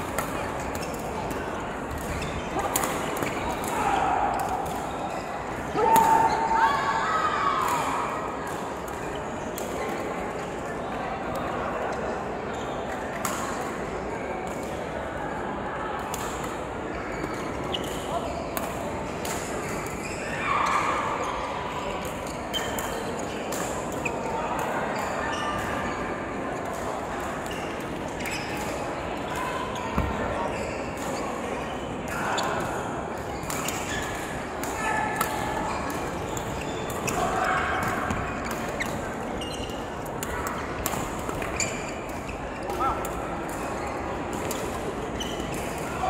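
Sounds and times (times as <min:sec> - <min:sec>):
players' voices: 0:00.0 - 0:46.0
shoes squeaking on court floor: 0:27.5 - 0:28.7, 0:33.4 - 0:34.4, 0:35.6 - 0:42.9, 0:43.7 - 0:45.8
shoes squeaking on floor: 0:38.0 - 0:40.0, 0:41.3 - 0:42.7, 0:45.2 - 0:45.5.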